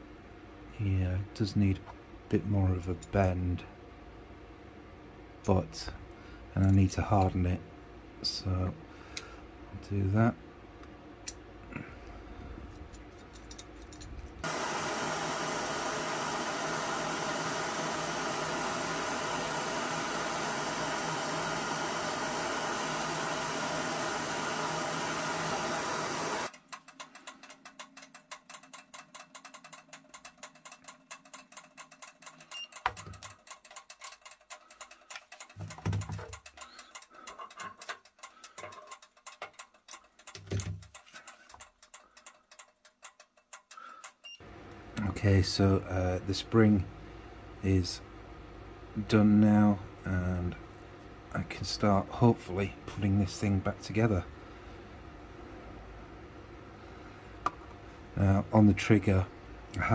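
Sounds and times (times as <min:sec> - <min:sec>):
blowtorch flame roaring: 0:14.4 - 0:26.5.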